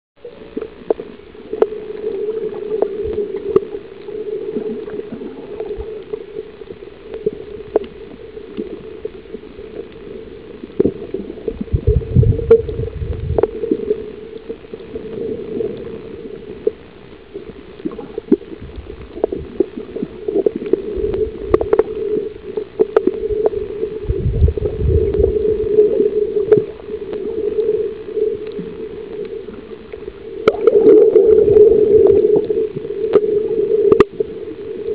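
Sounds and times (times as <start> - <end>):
underwater droning hum: 0.2 - 34.9
sharp clicks underwater: 0.3 - 34.9
low rumbles: 10.8 - 14.2, 18.2 - 28.0.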